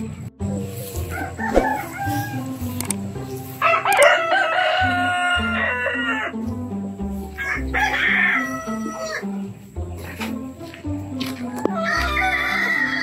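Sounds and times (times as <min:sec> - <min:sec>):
rooster crowing: 0:01.1 - 0:02.7, 0:03.6 - 0:06.4, 0:07.4 - 0:09.3, 0:11.5 - 0:13.0.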